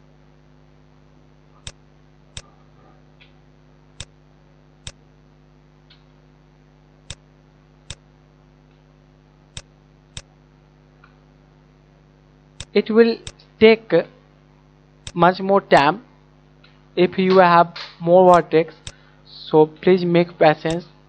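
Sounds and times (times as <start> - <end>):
low electrical hum: 0.0 - 21.0
computer mouse clicking: 12.6 - 13.4.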